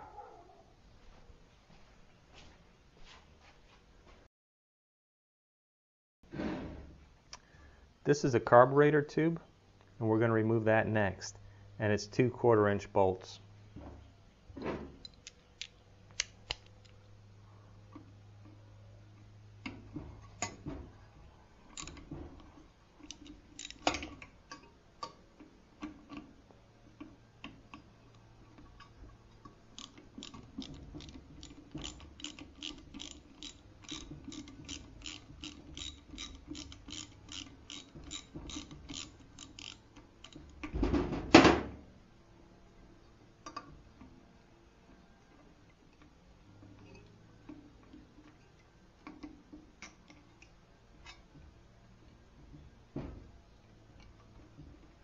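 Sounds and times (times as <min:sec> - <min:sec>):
socket ratchet clicking: 0:21.8 - 0:22.1, 0:23.0 - 0:24.2, 0:29.7 - 0:40.7.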